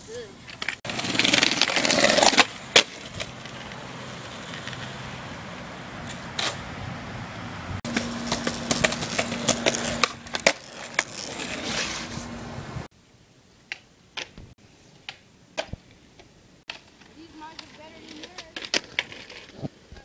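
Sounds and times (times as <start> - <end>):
skateboard wheels rolling on concrete: 0.0 - 12.9, 13.6 - 20.0
skateboard clacking on ground: 0.4 - 5.0, 7.9 - 12.3, 16.7 - 20.0.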